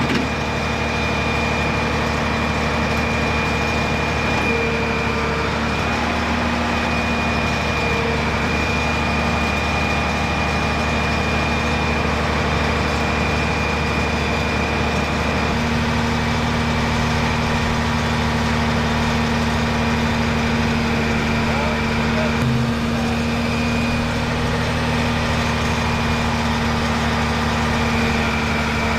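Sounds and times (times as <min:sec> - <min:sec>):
diesel engine idling: 0:00.0 - 0:28.9.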